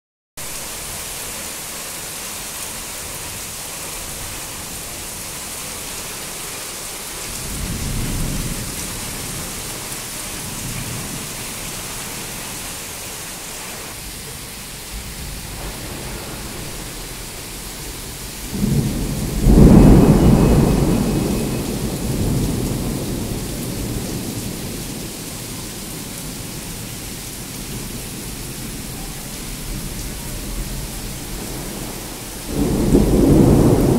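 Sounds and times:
heavy rain falling: 0.4s - 33.9s
thunder rumbling: 7.2s - 12.7s, 14.0s - 33.9s
loud thunderclap: 7.4s - 9.7s, 14.8s - 25.2s, 29.6s - 33.9s.

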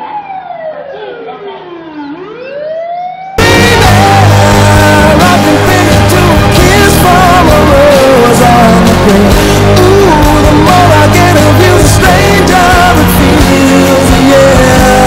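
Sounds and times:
loud song with singing: 3.4s - 15.0s.

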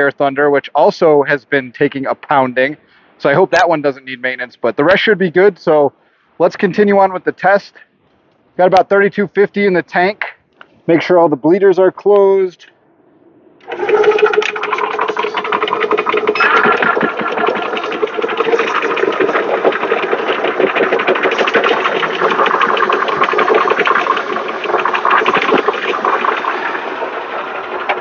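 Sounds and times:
compressor hum: 12.8s - 28.0s
compressor pistons clattering: 13.6s - 28.0s.

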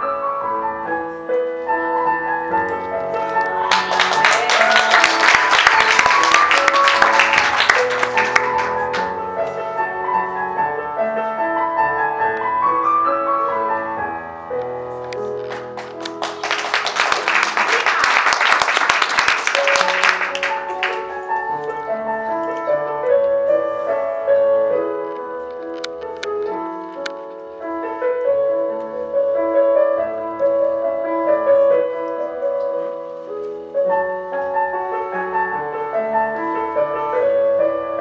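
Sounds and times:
piano music: 0.0s - 38.0s
audience applause: 3.6s - 9.1s, 15.5s - 21.1s.

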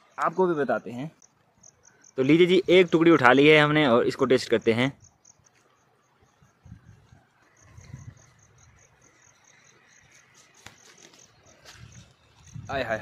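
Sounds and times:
faint insects chirping: 0.0s - 13.0s.

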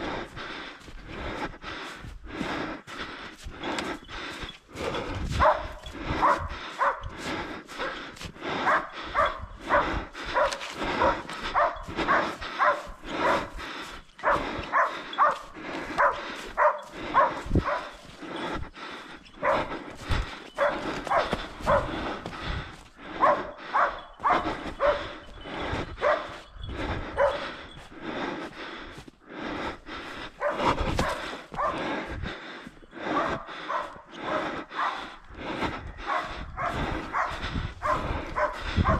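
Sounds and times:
dog barking: 5.4s - 7.1s, 8.6s - 13.5s, 14.2s - 18.0s, 19.4s - 19.7s, 20.6s - 22.2s, 23.1s - 25.2s, 26.0s - 26.4s, 27.1s - 27.4s, 30.4s - 31.8s, 33.1s - 35.2s, 36.0s - 38.9s.

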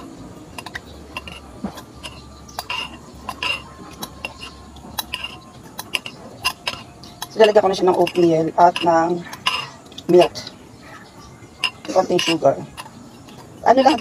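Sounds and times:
spoon clinking against glass bowl: 0.6s - 10.5s.

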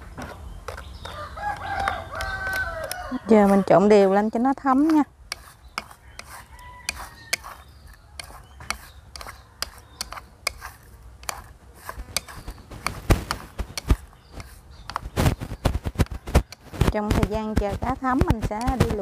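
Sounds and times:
chopsticks clicking on a bowl: 1.5s - 3.2s.

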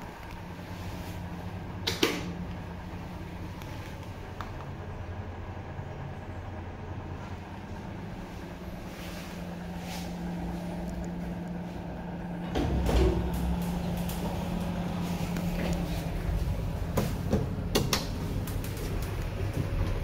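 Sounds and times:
lift hum: 0.0s - 20.0s
lift doors sliding open: 7.4s - 20.0s
lift doors thump: 12.4s - 16.2s.

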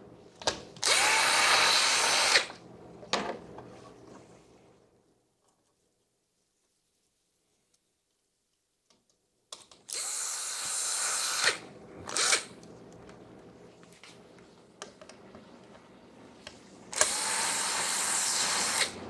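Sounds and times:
cordless drill spinning: 0.8s - 2.6s, 9.9s - 12.5s, 16.9s - 19.0s.

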